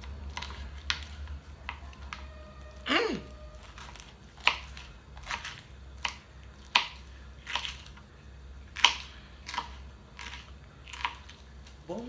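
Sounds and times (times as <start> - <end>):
knife chopping on plastic board: 0.0 - 2.4, 3.8 - 8.0, 8.7 - 11.4.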